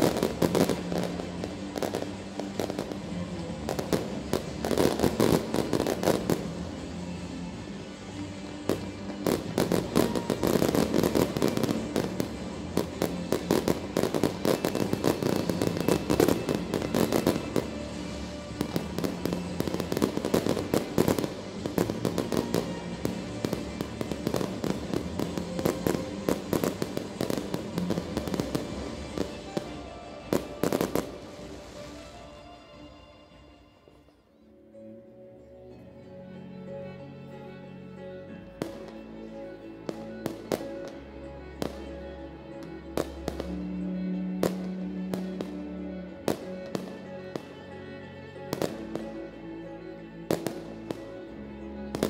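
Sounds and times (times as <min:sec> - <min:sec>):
fireworks bangs and crackles: 0:00.0 - 0:32.4, 0:42.6 - 0:47.5, 0:48.4 - 0:49.3, 0:50.3 - 0:51.1
music playing: 0:00.0 - 0:52.0.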